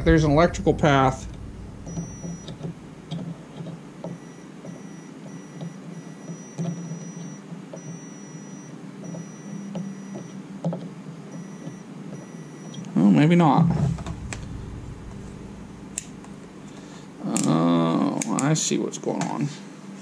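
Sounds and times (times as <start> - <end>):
steady low hum: 0.0 - 10.3, 12.2 - 18.2
multimeter beeps: 1.2 - 10.4, 11.3 - 12.9.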